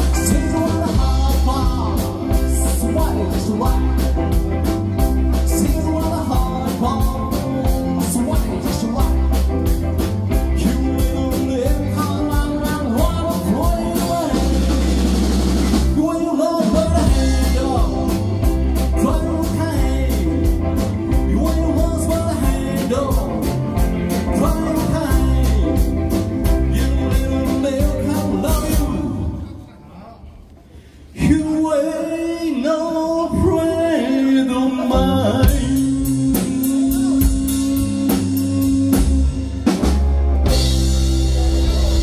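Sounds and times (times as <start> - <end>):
live rock band playing: 0.0 - 29.4, 33.3 - 42.0
person singing: 0.0 - 29.8, 31.2 - 42.0.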